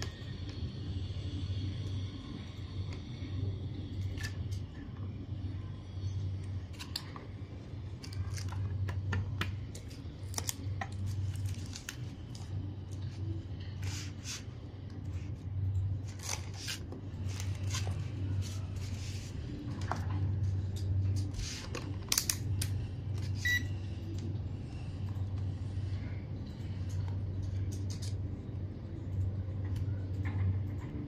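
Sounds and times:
steady low hum: 0.0 - 31.0
plastic film and wires crinkling: 9.7 - 14.4, 16.0 - 19.9
multimeter beep: 23.4 - 23.7.

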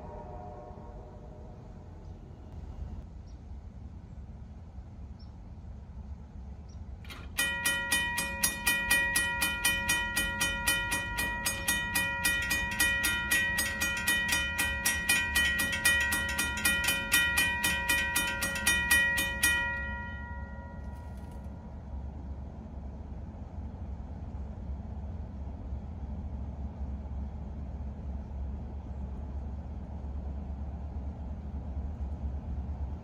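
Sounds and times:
bell click: 7.1 - 21.5
railroad crossing bell clanging: 7.1 - 21.8.

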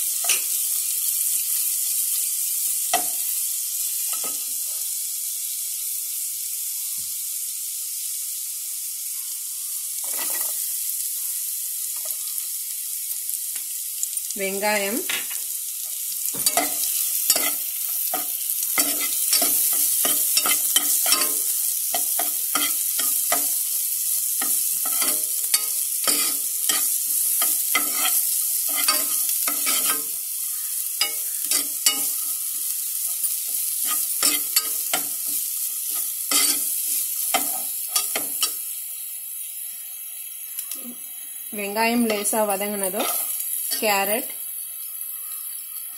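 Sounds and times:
onion and garlic sizzling in butter: 0.0 - 45.9
steel spoon scraping a pan: 10.0 - 10.7, 16.3 - 38.7, 42.0 - 44.2.

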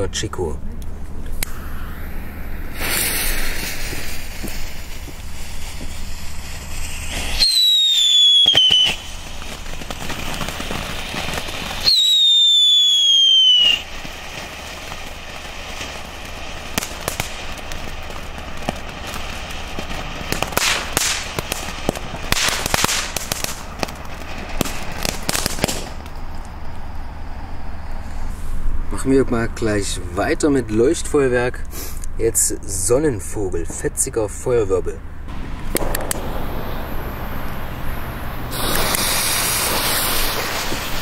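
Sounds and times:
firework crackling: 0.8 - 31.0, 35.3 - 41.0
firework whistles falling in pitch: 1.3 - 23.9, 35.7 - 41.0
hissing spray of sparks: 1.3 - 26.2, 35.3 - 41.0.

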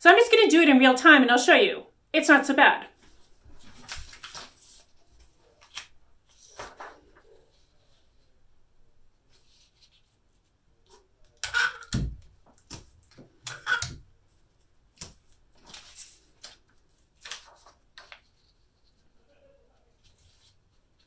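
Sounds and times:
paper rustling and sliding: 3.0 - 8.3, 15.1 - 19.2.

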